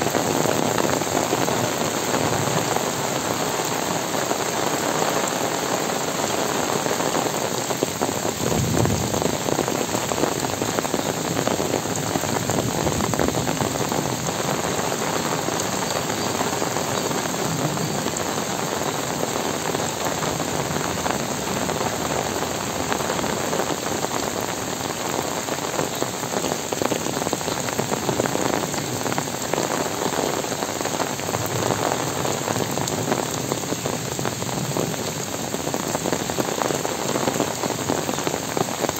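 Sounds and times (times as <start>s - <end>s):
heavy rain on trees: 0.0s - 38.9s.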